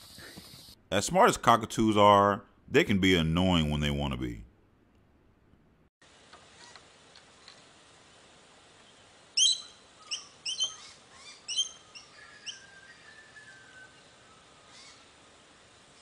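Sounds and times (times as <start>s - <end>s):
cockatoo squawking chirps: 9.4s - 13.9s.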